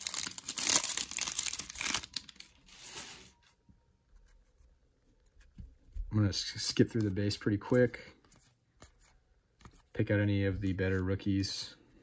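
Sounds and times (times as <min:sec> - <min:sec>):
plastic wrapper crinkling and tearing: 0:00.0 - 0:03.3.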